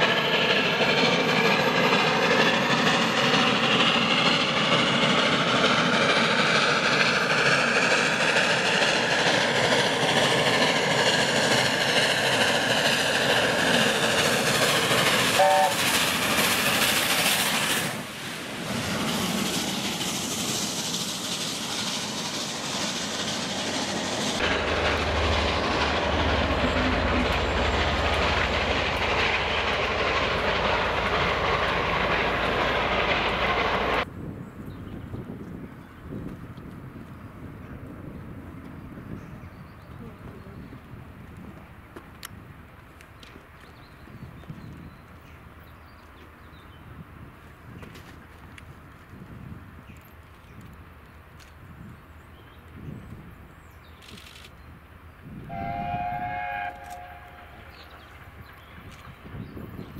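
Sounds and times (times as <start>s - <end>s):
steam train running past: 0.0s - 34.2s, 52.0s - 59.9s
wheels on rail: 0.0s - 59.9s.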